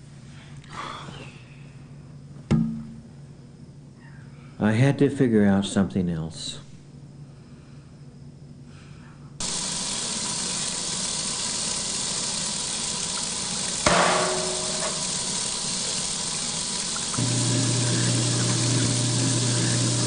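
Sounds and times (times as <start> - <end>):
water gushing from tap: 9.4 - 20.0
sharp clink: 13.9 - 15.3.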